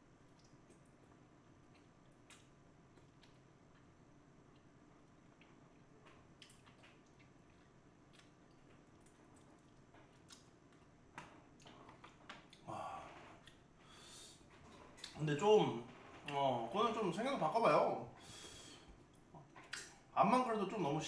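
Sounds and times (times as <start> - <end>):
person chewing food: 0.2 - 15.2
mouth clicks and smacks: 1.7 - 3.9, 5.4 - 10.9, 19.3 - 20.0
breath sound: 12.7 - 14.5, 18.2 - 19.0.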